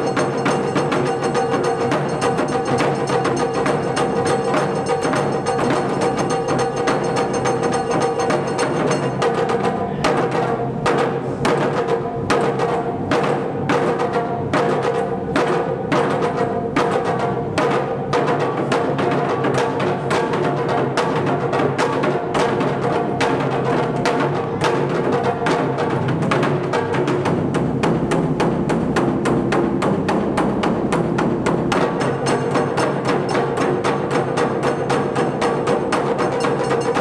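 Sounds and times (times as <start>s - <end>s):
taiko drums playing: 0.0s - 37.0s.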